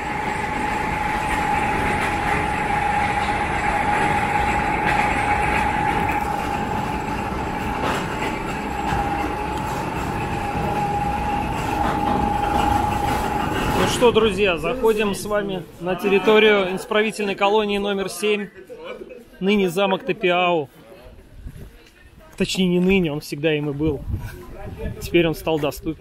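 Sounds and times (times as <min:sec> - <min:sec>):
high steady whine: 0:00.0 - 0:15.8
train rumbling past: 0:00.0 - 0:17.0.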